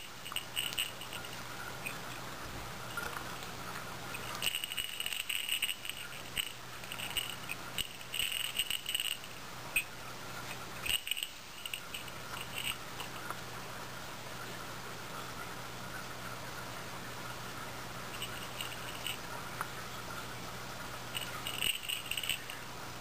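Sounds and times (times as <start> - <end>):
small metal bell jingling: 0.0 - 2.0, 4.1 - 9.9, 18.1 - 19.2, 21.1 - 22.6
faint steady hum: 0.0 - 23.0.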